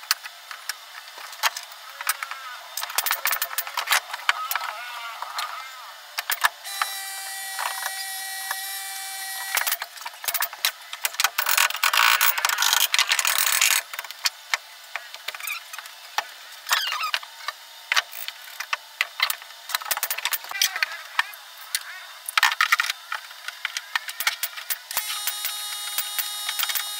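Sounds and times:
tool working wood: 6.3 - 9.8, 23.8 - 26.9
power tool whine: 6.6 - 9.8, 23.9 - 26.9.

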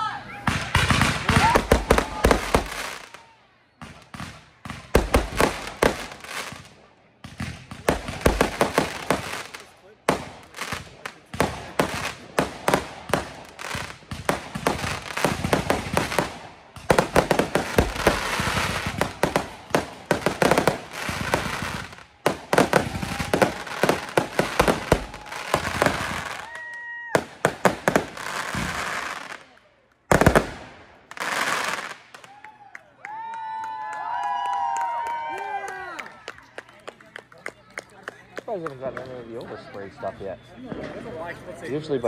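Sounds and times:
fireworks crackling and popping: 0.4 - 32.5
firework whistling: 11.7 - 29.4.

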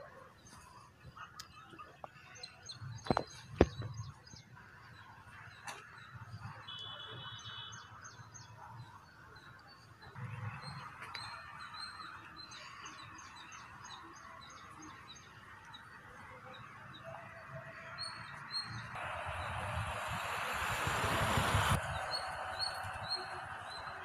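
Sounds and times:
steady hiss: 19.0 - 23.5
low rumbles: 19.0 - 24.0.

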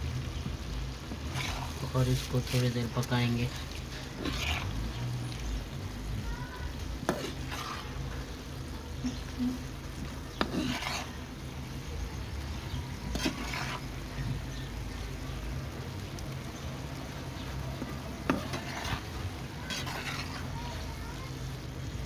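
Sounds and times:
spatula scraping a frying pan: 1.0 - 5.6, 6.9 - 11.4, 12.6 - 14.7, 17.4 - 21.1.

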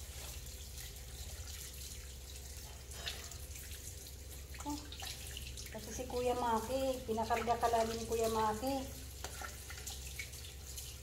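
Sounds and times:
faucet running into sink: 0.0 - 11.0.

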